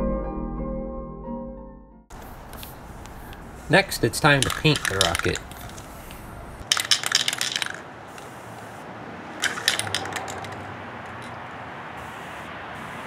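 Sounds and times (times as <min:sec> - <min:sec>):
spray can ball rattling: 0:02.1 - 0:11.5.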